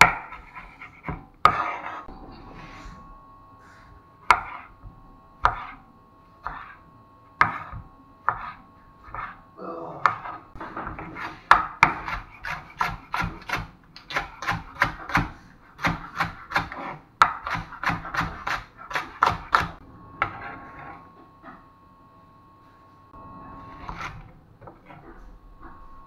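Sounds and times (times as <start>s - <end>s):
knife chopping on wooden board: 0.0s - 1.8s, 4.2s - 4.7s, 5.4s - 5.8s, 6.4s - 6.8s, 7.4s - 9.3s, 10.9s - 19.8s
soft scrapes: 1.6s - 4.7s.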